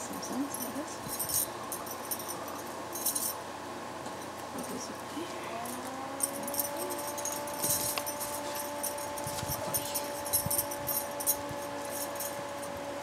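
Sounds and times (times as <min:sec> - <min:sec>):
steady mechanical hum: 0:00.0 - 0:13.0
bracelets clinking: 0:00.1 - 0:03.4, 0:05.6 - 0:12.7
hands rustling cloth: 0:06.3 - 0:12.4.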